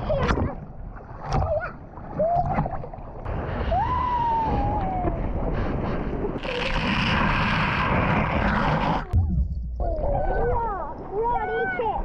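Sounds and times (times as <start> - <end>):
underwater rush of water: 0.0 - 12.0
child's high voice: 9.8 - 12.0.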